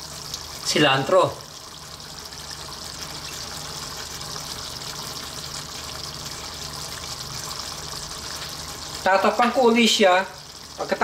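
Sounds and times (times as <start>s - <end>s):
sauce simmering in a pan: 0.0s - 11.0s.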